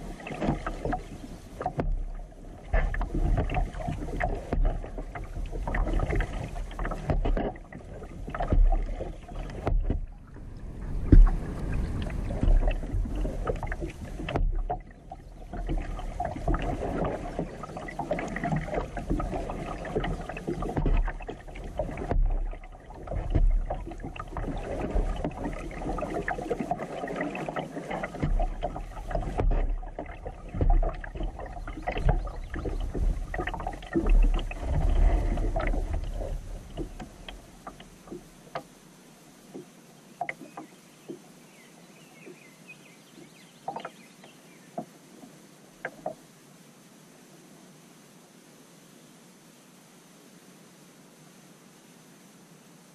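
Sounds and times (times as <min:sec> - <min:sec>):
low rumbling on microphone: 0:00.0 - 0:26.8, 0:28.1 - 0:38.4
paddle splashing and knocking: 0:00.0 - 0:38.7, 0:39.5 - 0:41.2, 0:43.1 - 0:46.2
water drips and light taps: 0:00.0 - 0:38.8, 0:39.4 - 0:41.3, 0:43.1 - 0:46.2.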